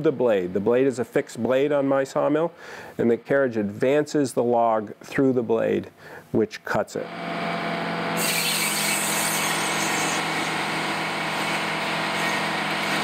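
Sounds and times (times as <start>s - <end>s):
low motor hum: 7.0s - 13.0s
circular saw cutting wood: 8.1s - 13.0s.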